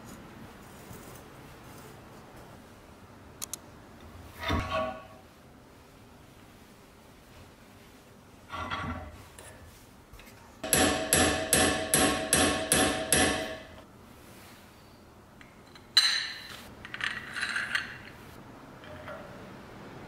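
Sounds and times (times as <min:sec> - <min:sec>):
hammer striking metal pin: 0:10.6 - 0:13.8.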